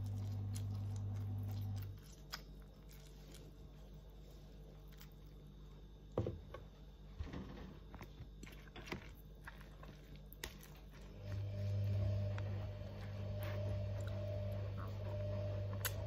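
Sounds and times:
steady low hum: 0:00.0 - 0:16.0
louder low hum: 0:10.9 - 0:16.0.

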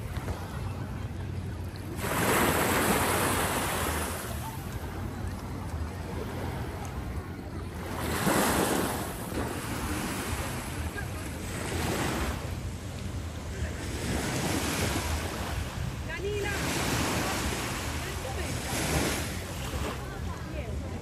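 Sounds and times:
sea waves washing in: 0:00.0 - 0:21.0.

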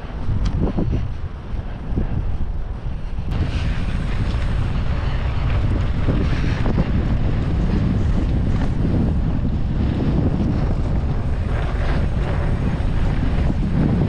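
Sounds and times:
bike rattles: 0:00.0 - 0:14.0
wind buffeting microphone: 0:00.0 - 0:14.0.

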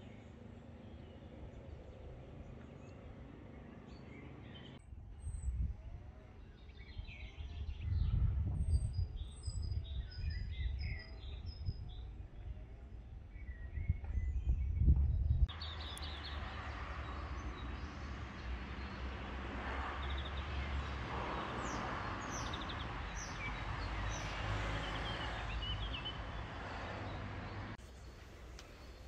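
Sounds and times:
birds chirping: 0:00.0 - 0:29.0
wind rumble on microphone: 0:04.8 - 0:16.5
steady outdoor hiss: 0:27.7 - 0:29.0.

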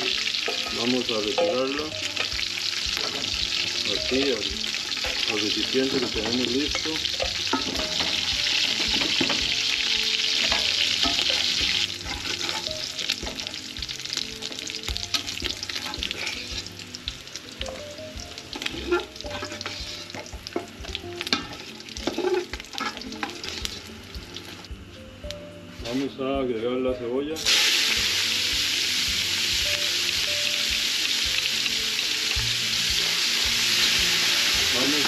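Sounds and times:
meat sizzling in hot oil: 0:00.0 - 0:24.8, 0:27.4 - 0:35.0
ladle scraping a metal pot: 0:10.3 - 0:13.4, 0:15.1 - 0:16.7, 0:18.6 - 0:23.8.

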